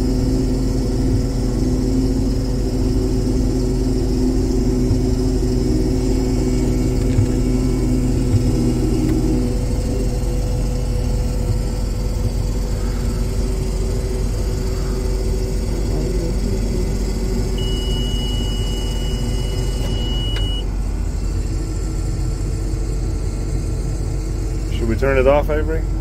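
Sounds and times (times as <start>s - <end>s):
harvester engine running: 0.0s - 26.0s
high-pitched beep: 17.6s - 20.6s.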